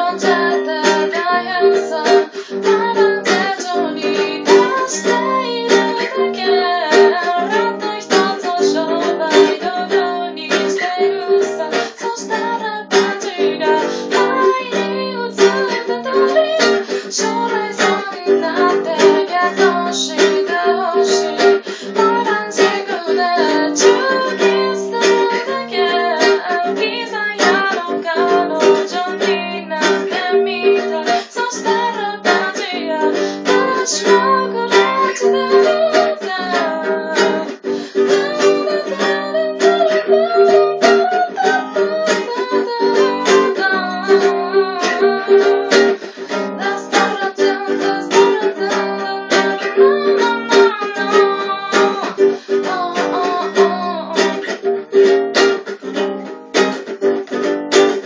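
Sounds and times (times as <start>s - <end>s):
woman singing: 0.0s - 56.8s
acoustic guitar strumming: 0.0s - 58.0s.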